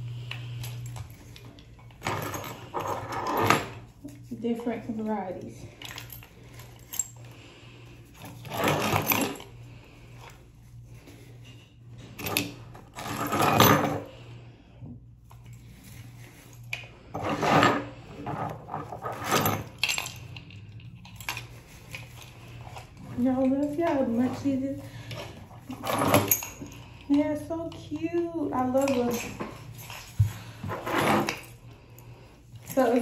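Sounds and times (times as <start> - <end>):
keychains jangling and clinking: 0.5 - 3.8, 5.4 - 7.4, 18.9 - 33.0.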